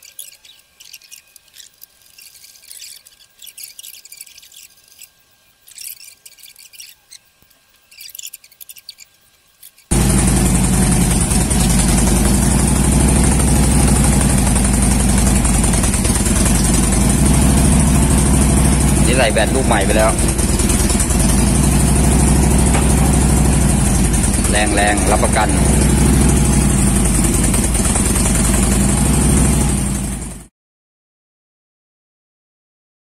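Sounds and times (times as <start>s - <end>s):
motorcycle engine running: 9.9s - 30.5s.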